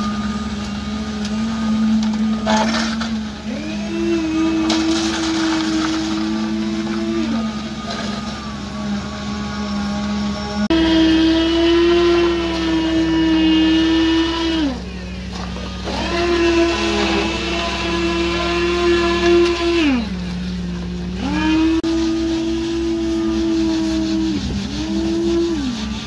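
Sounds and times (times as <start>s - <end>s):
low engine drone: 0.0s - 26.0s
machinery whine gliding in pitch: 0.0s - 26.0s.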